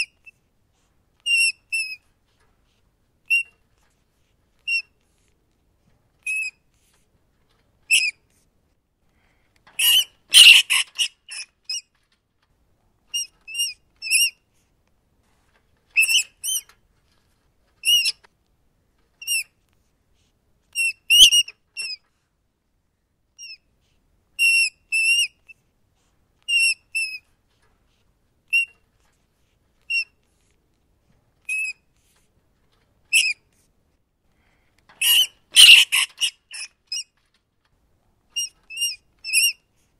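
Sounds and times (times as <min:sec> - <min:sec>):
rats squeaking: 0:00.0 - 0:00.4, 0:01.2 - 0:04.0, 0:04.6 - 0:05.3, 0:06.2 - 0:08.4, 0:09.7 - 0:12.1, 0:13.0 - 0:14.5, 0:15.5 - 0:18.3, 0:19.2 - 0:19.6, 0:20.7 - 0:22.1, 0:23.4 - 0:23.7, 0:24.4 - 0:25.6, 0:26.4 - 0:29.1, 0:29.8 - 0:30.5, 0:31.4 - 0:33.6, 0:35.0 - 0:37.4, 0:38.3 - 0:39.9
harsh rat squeals: 0:07.9 - 0:08.2, 0:09.8 - 0:12.0, 0:16.0 - 0:16.7, 0:17.8 - 0:18.2, 0:31.4 - 0:31.8, 0:33.1 - 0:33.5, 0:35.0 - 0:37.3, 0:38.4 - 0:39.6.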